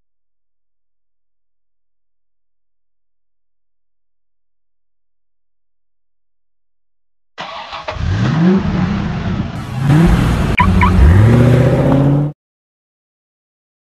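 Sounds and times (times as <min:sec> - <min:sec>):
car engine revving: 0:07.4 - 0:12.4.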